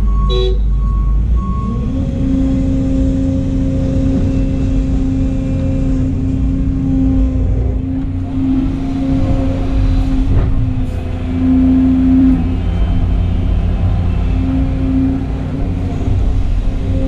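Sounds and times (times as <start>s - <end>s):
reversing alarm beeps: 0.0s - 2.1s
excavator engine and hydraulics whine: 0.0s - 17.0s.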